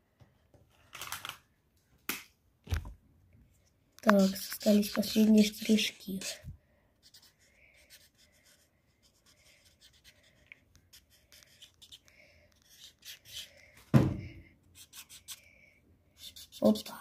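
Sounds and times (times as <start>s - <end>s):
marker pen scratching on paper: 4.1s - 6.4s, 7.0s - 13.7s, 14.7s - 15.5s, 16.2s - 17.0s
loud thump: 13.9s - 14.4s.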